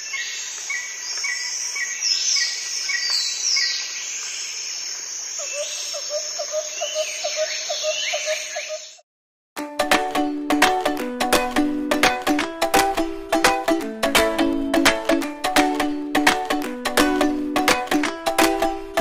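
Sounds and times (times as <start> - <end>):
birds chirping: 0.0 - 9.0.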